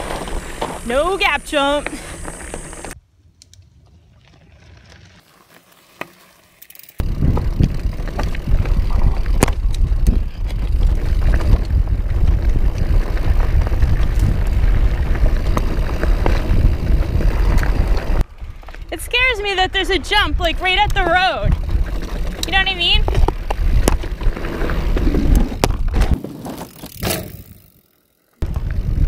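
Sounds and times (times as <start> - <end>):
mountain bike rumbling over rocks: 0.0 - 3.0, 6.9 - 19.3, 20.3 - 29.0.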